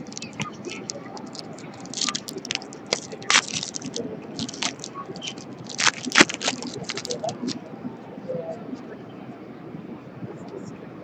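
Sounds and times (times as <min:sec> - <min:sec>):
plastic and foil packaging crinkling: 0:00.0 - 0:07.6.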